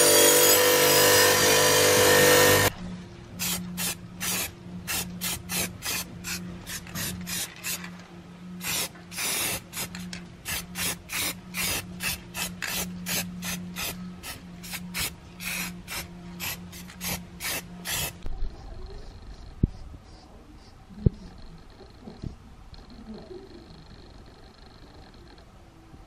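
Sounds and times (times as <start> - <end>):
steady low hum: 2.6 - 26.0
spray can hissing bursts: 3.4 - 7.8, 8.6 - 18.2.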